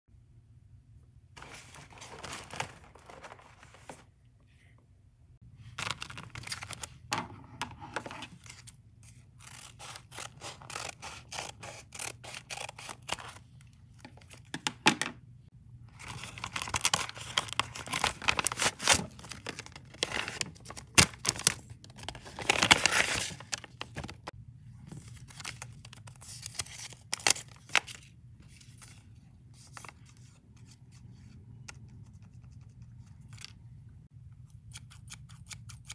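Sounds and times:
paper rustling and crackling: 0:01.4 - 0:04.2, 0:16.0 - 0:24.3.

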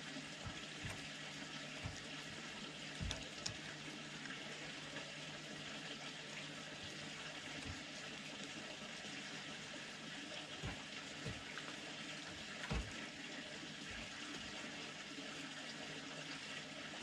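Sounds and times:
animal chewing and licking: 0:00.4 - 0:04.4.

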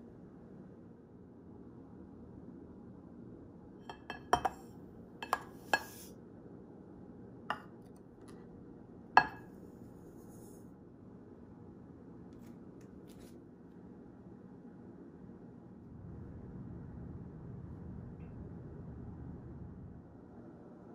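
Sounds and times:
faint room hum: 0:00.0 - 0:20.9
dishes and utensils clinking: 0:03.9 - 0:06.1, 0:09.2 - 0:09.5.

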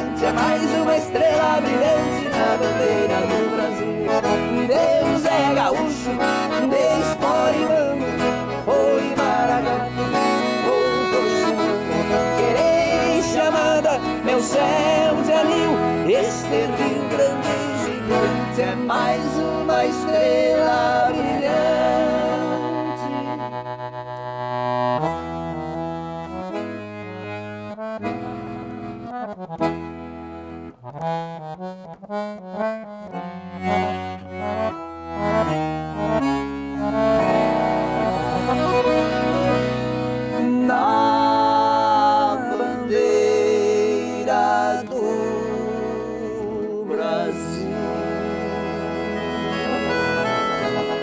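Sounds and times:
accordion playing chords: 0:00.0 - 0:51.0.

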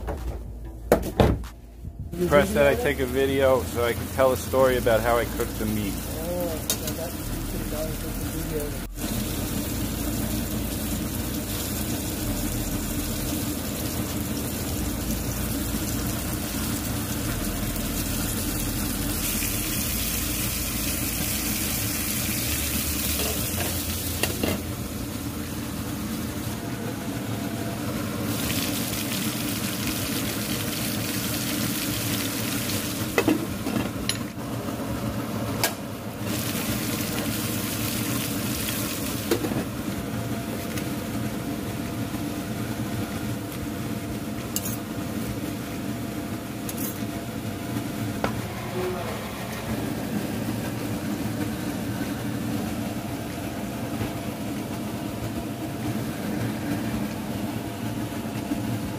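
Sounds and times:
meat sizzling in a pan: 0:09.0 - 0:24.7, 0:28.2 - 0:33.2, 0:36.2 - 0:39.4.

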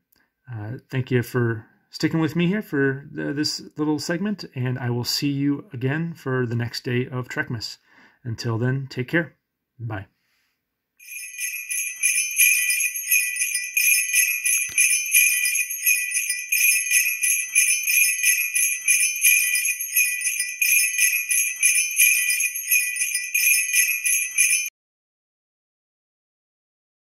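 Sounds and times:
jingle bells shaken: 0:11.0 - 0:24.7.

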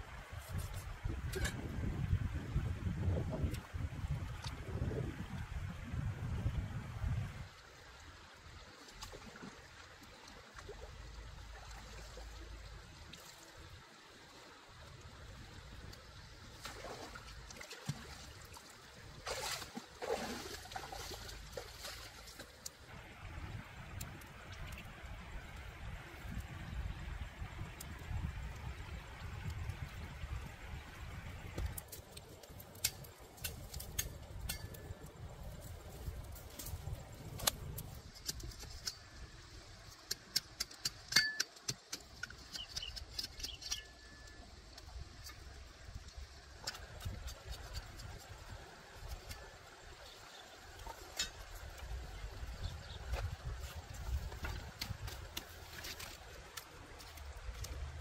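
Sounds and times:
clicks and snaps of plant stems: 0:31.6 - 0:34.8, 0:36.5 - 0:39.0.

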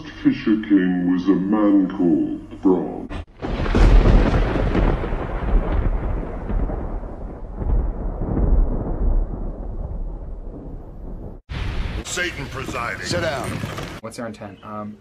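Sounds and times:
thunder crash and rumble: 0:03.2 - 0:14.0.

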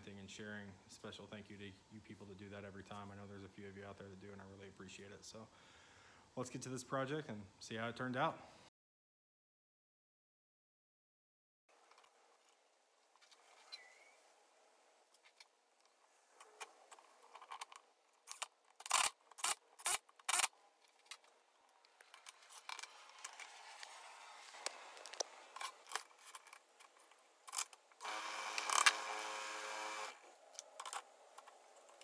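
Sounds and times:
power drill driving screws: 0:27.5 - 0:30.3
wood lathe motor humming: 0:28.0 - 0:30.4.

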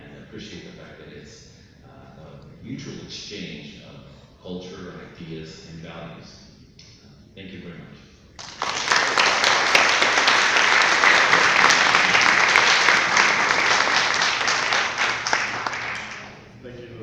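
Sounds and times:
audience applauding: 0:08.4 - 0:16.5.

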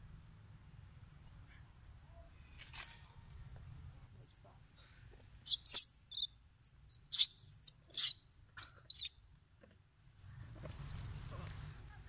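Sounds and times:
baby monkey squealing: 0:05.5 - 0:09.1.

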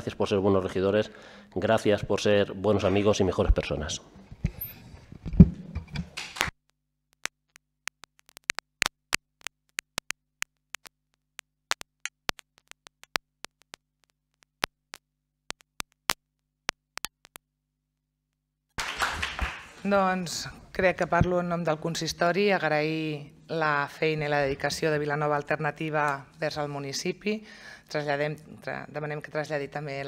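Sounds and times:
sparse hand claps: 0:18.8 - 0:19.8.

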